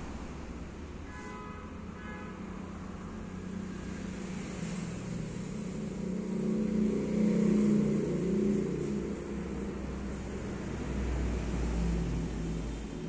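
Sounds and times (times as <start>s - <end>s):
vehicle engine humming: 1.7s - 13.0s.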